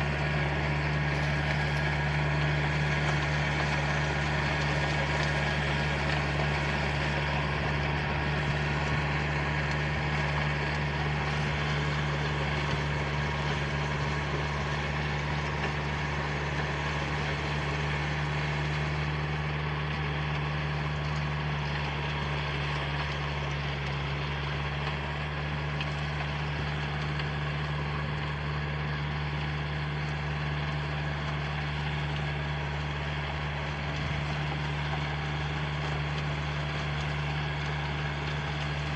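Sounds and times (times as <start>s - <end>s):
tractor engine under load: 0.0s - 38.9s.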